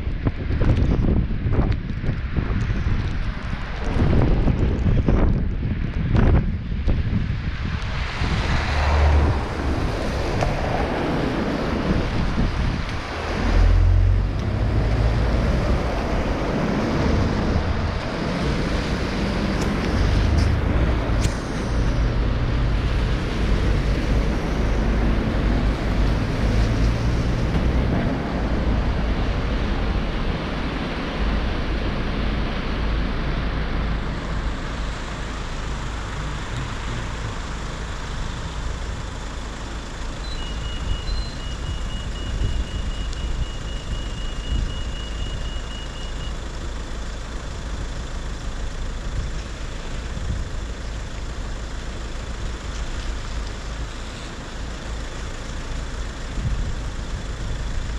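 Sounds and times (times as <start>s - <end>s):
tyres hissing on wet road: 7.2s - 57.9s
car swishing past on wet road: 8.0s - 22.1s.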